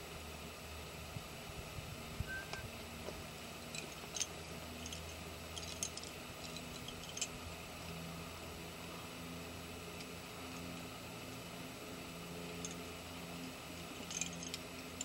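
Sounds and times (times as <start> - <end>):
low background hum: 0.0 - 15.0
climbing gear clicking and clinking: 3.7 - 7.4, 12.6 - 15.0.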